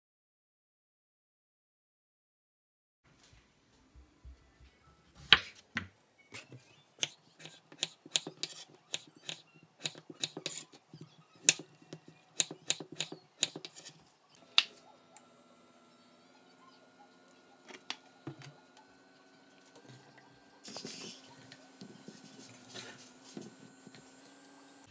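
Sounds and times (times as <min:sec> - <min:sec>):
faint hob hum: 0:03.1 - 0:24.9.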